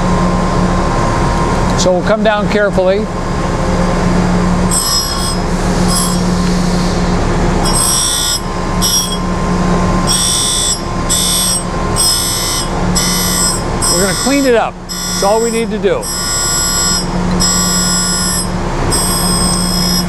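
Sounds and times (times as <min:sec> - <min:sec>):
grinding wheel humming: 0:00.0 - 0:20.0
high-pitched grinding hiss: 0:04.7 - 0:09.3, 0:10.0 - 0:20.0.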